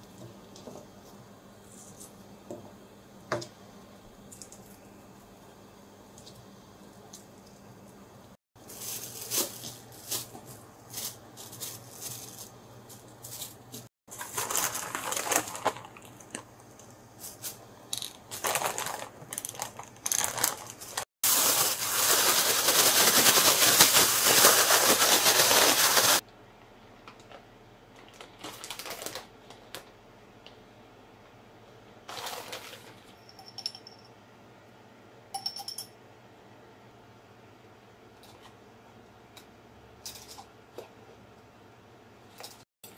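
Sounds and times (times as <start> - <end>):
bag being shaken: 8.6 - 16.0, 18.3 - 26.2
plastic bag crinkling: 8.6 - 16.6, 17.2 - 26.2, 28.0 - 29.9.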